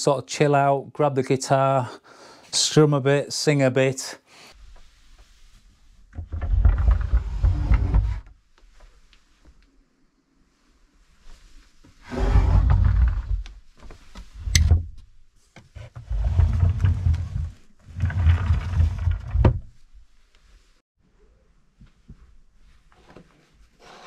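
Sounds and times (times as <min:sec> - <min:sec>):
wooden drawers rumbling on runners: 0:06.2 - 0:08.2, 0:12.2 - 0:13.4, 0:16.0 - 0:19.7.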